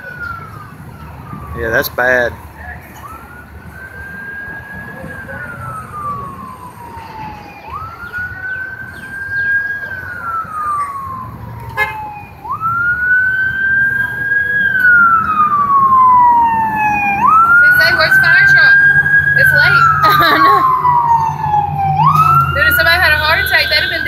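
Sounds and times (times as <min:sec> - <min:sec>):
emergency siren wailing: 0:00.0 - 0:24.0.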